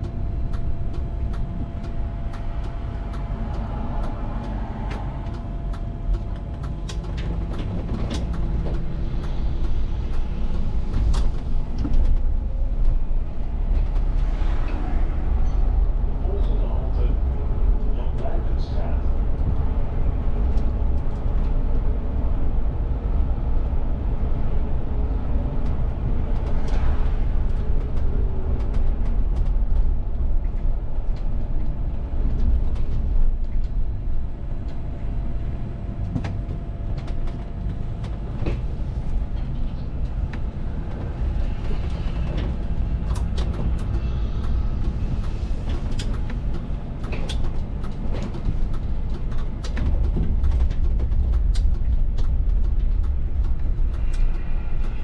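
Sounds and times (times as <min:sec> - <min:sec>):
bus engine and road rumble: 0:00.0 - 0:55.0
cab clicks and rattles: 0:45.2 - 0:55.0.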